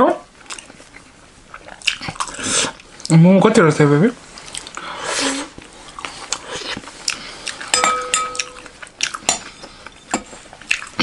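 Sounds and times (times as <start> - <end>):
spoon clinking on glass: 7.7 - 8.7.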